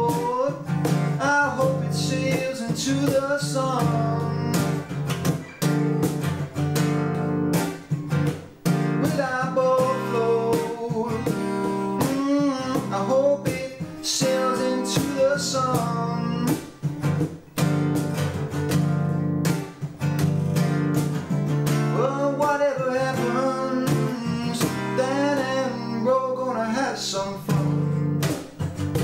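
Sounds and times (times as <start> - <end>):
man singing: 0.0 - 5.0, 8.7 - 16.8, 21.8 - 28.3
strummed acoustic guitar: 0.0 - 29.0.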